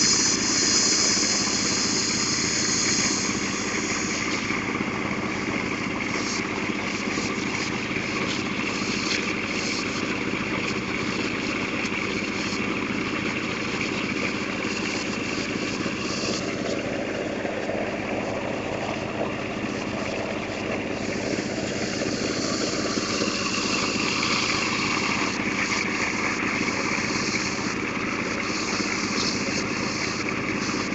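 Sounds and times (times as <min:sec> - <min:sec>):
drilling rig machine drone: 0:00.0 - 0:30.9.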